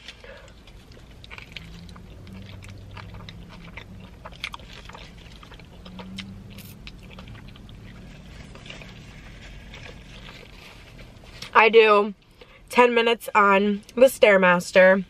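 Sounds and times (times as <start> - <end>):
person chewing food: 0.0 - 11.6.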